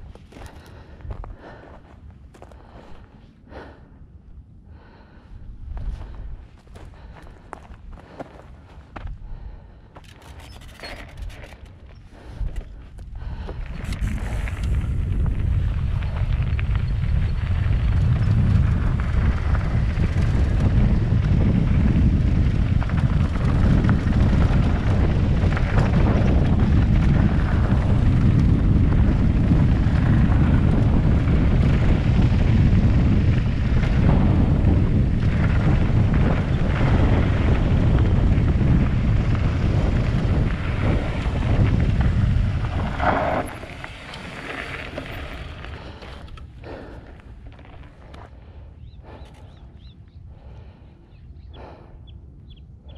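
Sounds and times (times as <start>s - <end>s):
wind buffeting microphone: 0.0s - 52.9s
tyres rumbling: 4.7s - 49.7s
bike rattling: 5.9s - 49.9s.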